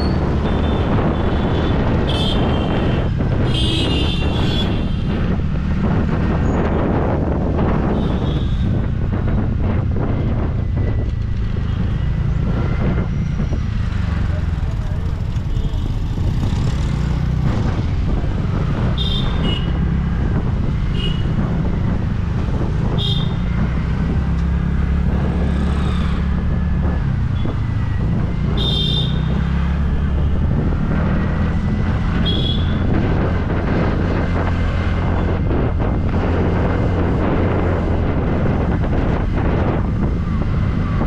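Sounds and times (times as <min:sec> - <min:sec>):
road noise: 0:00.0 - 0:41.0
wind on microphone: 0:00.0 - 0:41.0
vehicle horn beeps: 0:28.6 - 0:29.2, 0:32.2 - 0:32.8.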